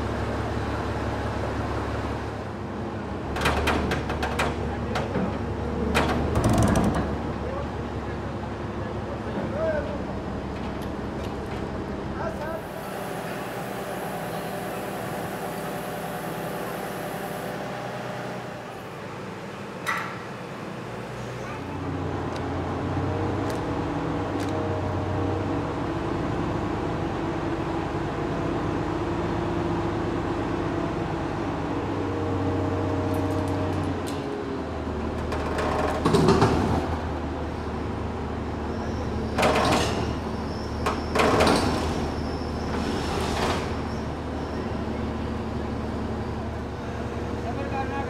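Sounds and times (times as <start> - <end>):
machine motor humming: 12.6 - 17.7.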